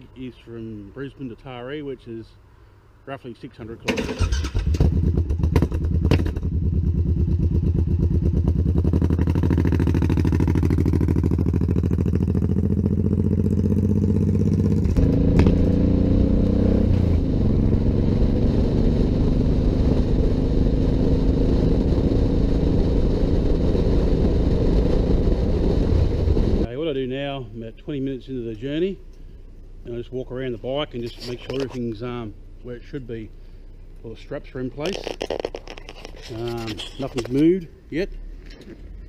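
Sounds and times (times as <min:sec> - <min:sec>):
motorcycle engine running: 0:04.6 - 0:26.7
rushing wind noise: 0:14.8 - 0:26.7.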